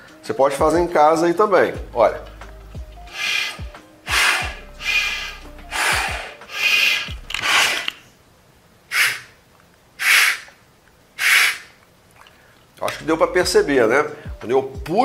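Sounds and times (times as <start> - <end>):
rasping breaths through snorkel: 3.0 - 8.0, 8.9 - 9.4, 10.0 - 10.6, 11.2 - 12.5.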